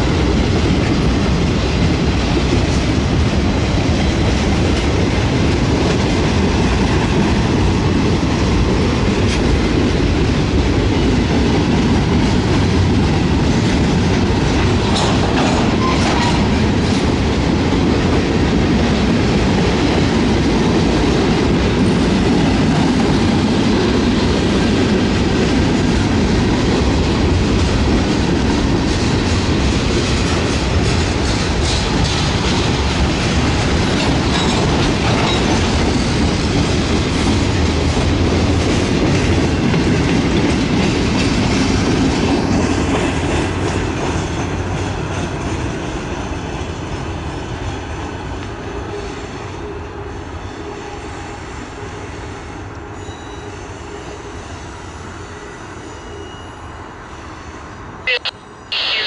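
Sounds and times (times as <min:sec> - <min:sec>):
train wheels on rails: 0:00.0 - 0:59.0.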